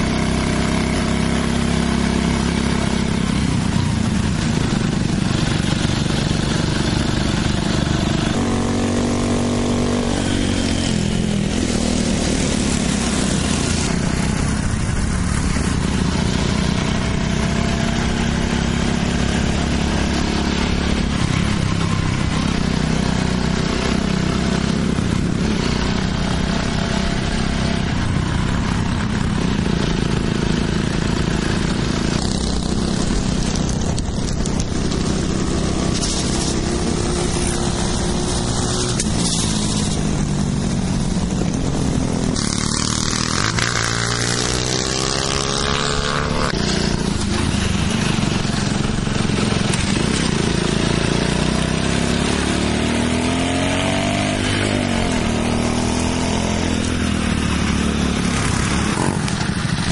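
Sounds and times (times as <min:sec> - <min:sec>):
small motorcycle engines running: 0:00.0 - 0:59.9.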